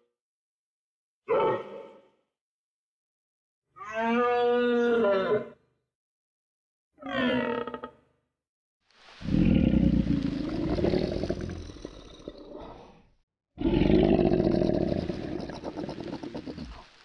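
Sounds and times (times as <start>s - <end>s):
crocodile bellowing: 9.2s - 12.9s, 13.6s - 17.0s.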